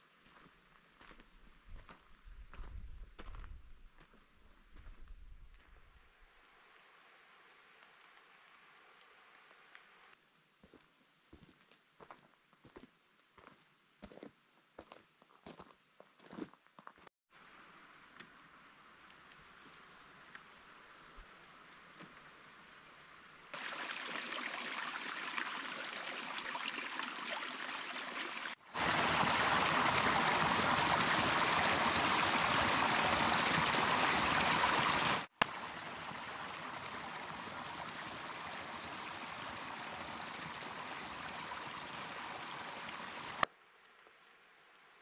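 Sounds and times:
creek splashing over rocks: 19.4 - 43.5.

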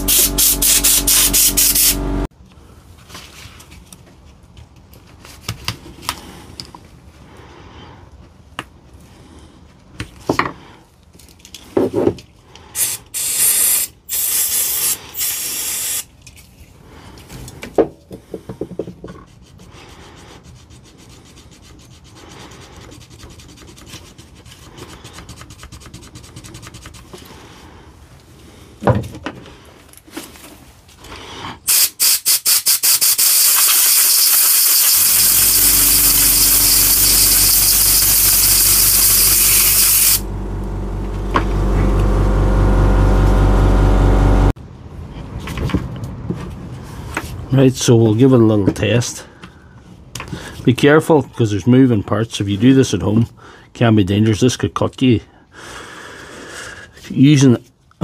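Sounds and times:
compressed air blow gun hissing: 0.0 - 2.3, 12.8 - 16.1, 31.7 - 40.2
low hum: 0.0 - 2.3, 35.1 - 44.6
scraping and rubbing at switch: 33.6 - 44.5.

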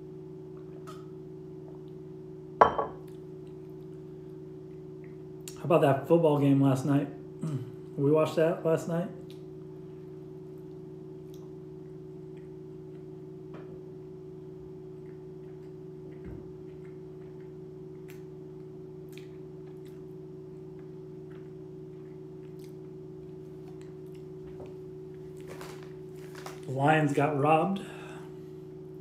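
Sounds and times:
low kitchen hum: 0.0 - 29.0
person chewing sandwich: 14.7 - 26.7.

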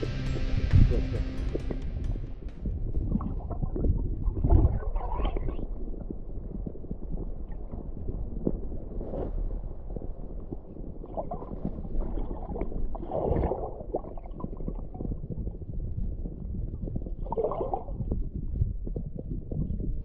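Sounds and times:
underwater rumble and gurgling: 0.0 - 20.0
splashing rush of bubbles: 3.0 - 8.3, 11.0 - 15.3, 17.2 - 18.0.

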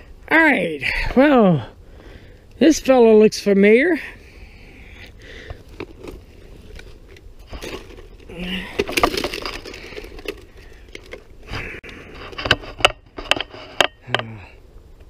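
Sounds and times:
puppet handling rustles and scrapes: 12.1 - 13.9
sharp clicks and knocks: 12.2 - 14.3.

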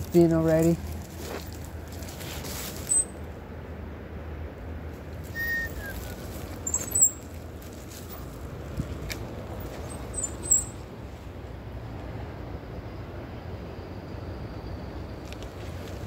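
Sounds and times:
bicycle tyres rumbling on dirt: 0.0 - 3.1.

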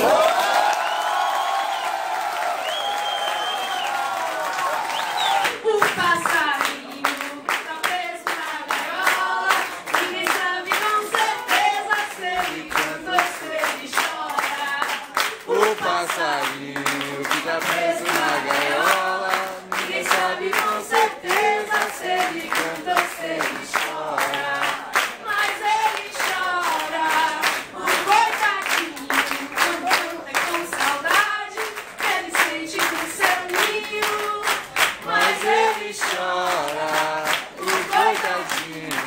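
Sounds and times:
hand claps beat: 4.5 - 39.0
woman singing into a microphone: 5.4 - 16.5, 17.7 - 36.2.

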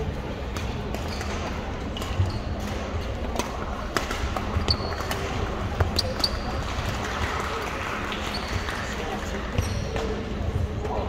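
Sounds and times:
murmur of voices: 0.0 - 11.0
rackets hitting shuttlecocks: 0.4 - 7.0
sneaker squeaks on hardwood: 1.0 - 2.6, 4.6 - 5.2, 5.8 - 6.6.

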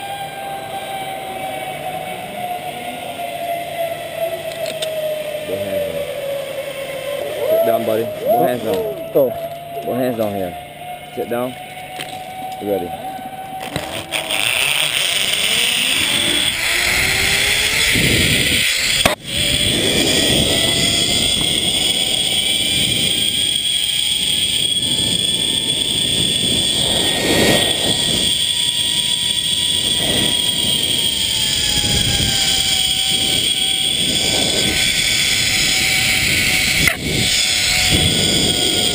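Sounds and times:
zipline pulley whine: 0.0 - 38.9
wind on microphone: 13.8 - 38.9.

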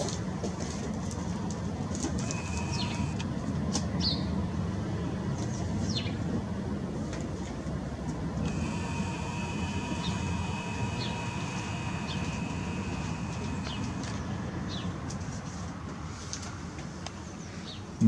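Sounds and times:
camera zoom motor whine: 2.2 - 3.3, 8.4 - 14.3.

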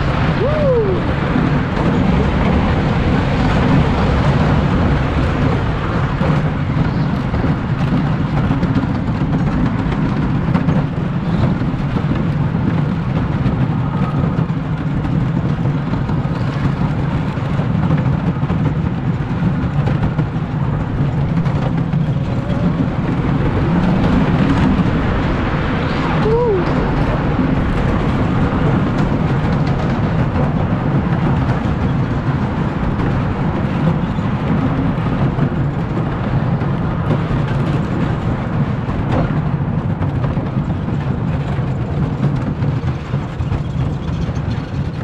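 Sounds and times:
roller coaster wheels rumbling: 0.0 - 45.0.

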